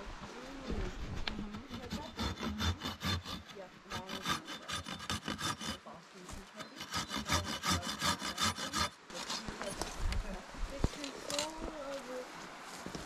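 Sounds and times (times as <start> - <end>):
saw rasping through wood: 1.4 - 9.4.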